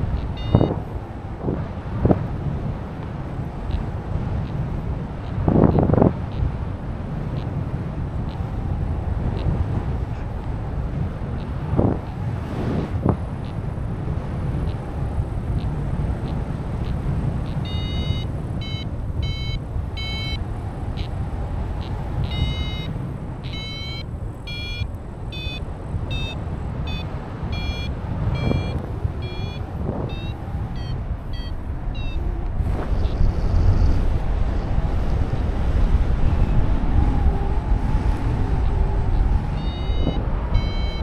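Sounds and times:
variometer beeping: 0.0s - 1.0s, 3.6s - 8.6s, 11.3s - 12.2s, 13.0s - 13.8s, 14.6s - 33.3s, 38.6s - 41.0s
wind on microphone: 0.0s - 41.0s.

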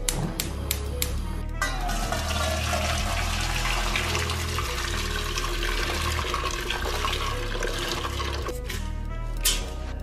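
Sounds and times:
water pouring into a metal pot: 1.6s - 8.6s.

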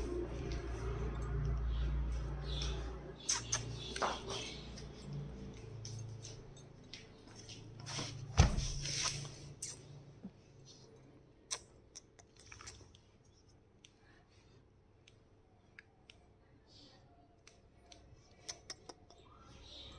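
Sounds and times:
puppy paws clicking on tile: 0.4s - 7.8s, 17.4s - 19.3s.

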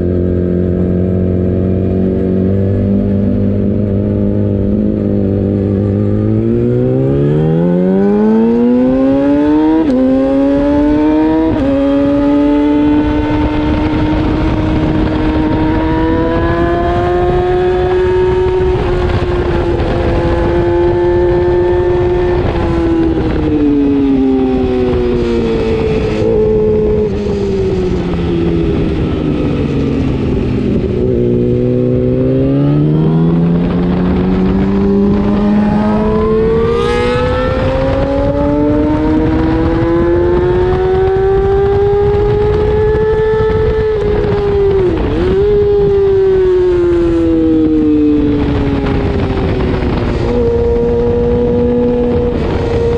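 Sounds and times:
motorcycle engine revving: 0.0s - 52.9s
wind rush: 0.0s - 52.9s.

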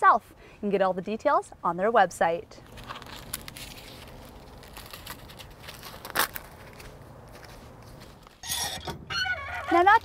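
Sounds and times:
husk ripping: 2.6s - 7.0s
corn husk crinkling: 2.6s - 10.0s.

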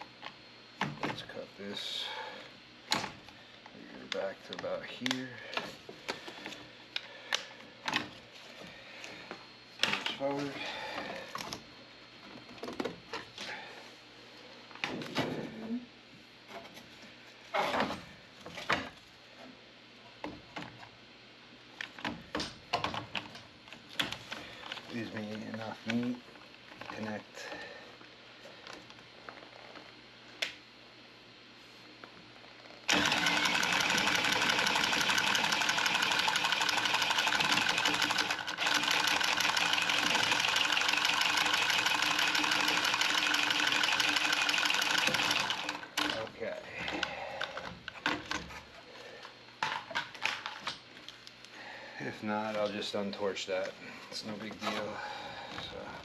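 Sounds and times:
power tubing cutter motor whir: 32.9s - 46.1s.

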